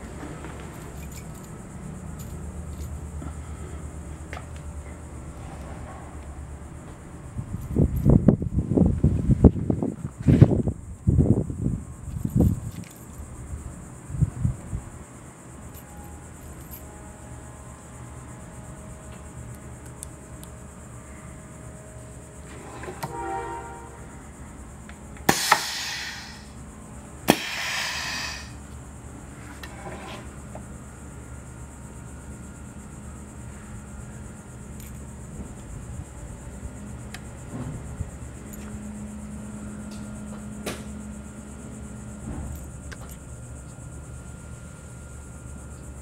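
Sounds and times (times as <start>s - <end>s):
small clicks of metal parts: 0.7s - 1.6s, 12.1s - 13.2s, 34.8s - 35.0s, 42.5s - 43.2s
air hissing: 25.2s - 28.7s.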